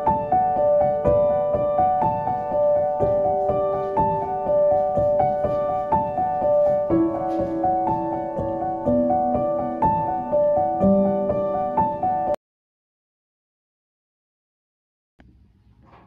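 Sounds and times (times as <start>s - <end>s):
soft piano music: 0.0s - 12.4s.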